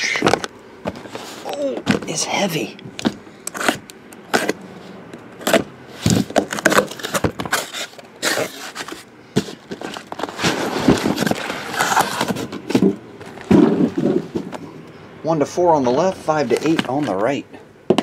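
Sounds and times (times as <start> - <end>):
cardboard box being opened: 5.4 - 14.5.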